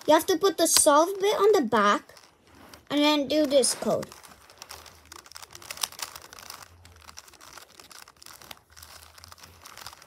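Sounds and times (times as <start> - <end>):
puzzle cube clicking: 3.3 - 10.0.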